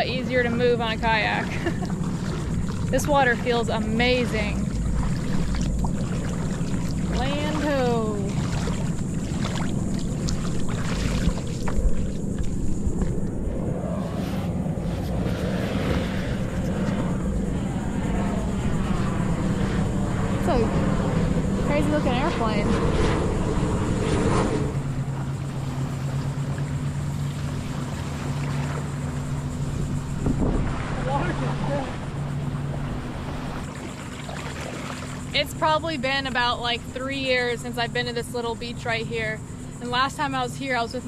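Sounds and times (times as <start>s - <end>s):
wind noise on microphone: 0.0s - 26.0s, 29.6s - 33.7s
motorboat engine drone: 0.0s - 41.0s
steady low rumble: 0.0s - 41.0s.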